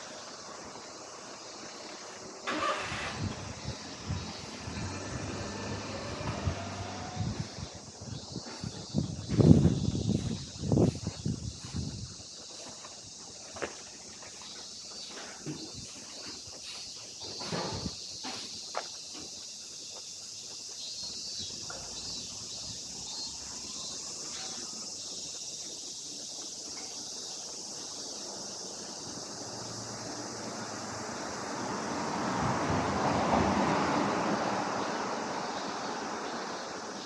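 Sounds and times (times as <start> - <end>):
cicadas hissing: 0.0 - 37.0
vehicle passing by: 2.5 - 8.1, 29.4 - 36.9.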